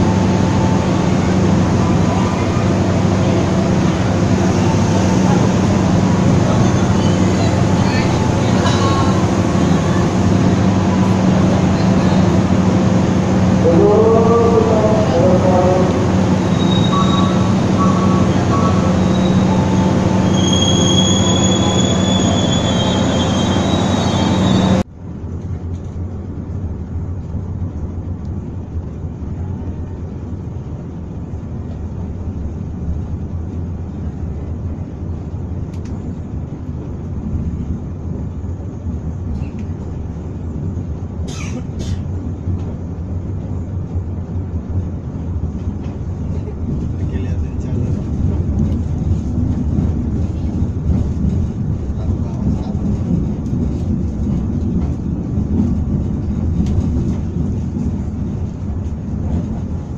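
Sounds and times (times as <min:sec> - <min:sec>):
train carriages rumbling: 0:00.0 - 0:59.9
train rumble inside carriage: 0:00.0 - 0:59.9
high wheel squeals: 0:16.3 - 0:24.8.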